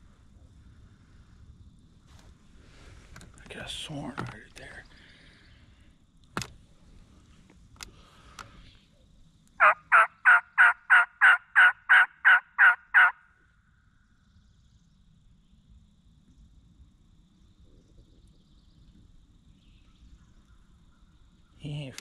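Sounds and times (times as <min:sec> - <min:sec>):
faint clicks: 0:07.4 - 0:08.6
turkey yelps: 0:09.6 - 0:13.2.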